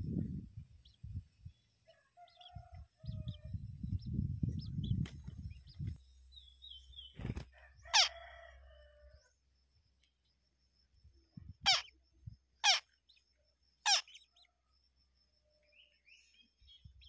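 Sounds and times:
wing flutter: 4.7 - 6.0, 7.0 - 7.6
nestlings chirping: 11.5 - 12.0, 12.6 - 14.5.

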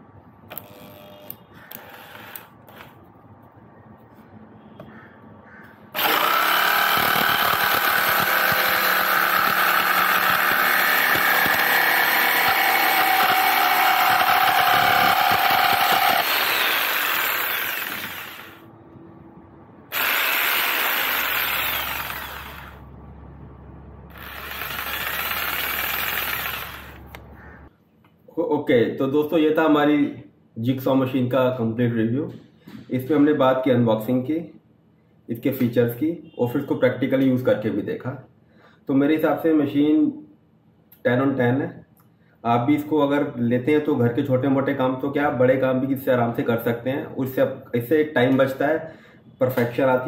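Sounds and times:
jigsaw cutting wood: 0.5 - 2.8, 6.0 - 18.6, 19.9 - 22.8, 24.1 - 27.2.

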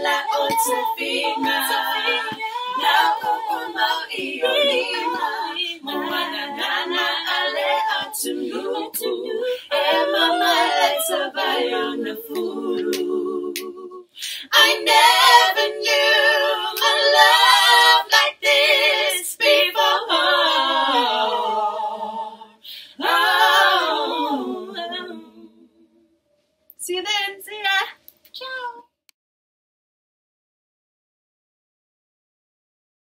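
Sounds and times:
women's group singing a cappella: 0.0 - 25.9.

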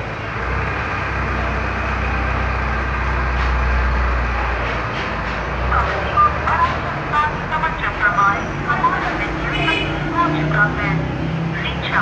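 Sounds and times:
voice from phone speaker: 5.7 - 12.0.

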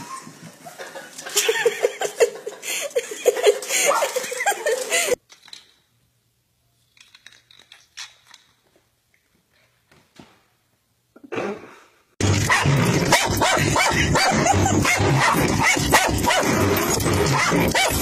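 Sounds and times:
dog barking and yipping: 12.4 - 18.0.

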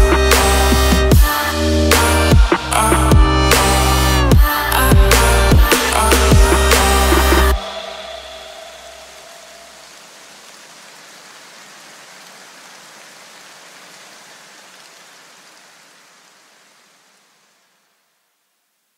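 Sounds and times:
electronic music: 0.0 - 9.7
steady hiss: 0.2 - 18.9.

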